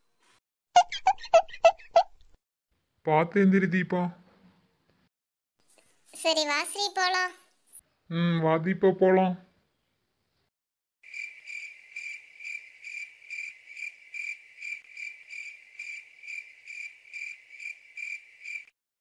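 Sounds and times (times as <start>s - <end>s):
cricket chirping: 11.0s - 18.7s.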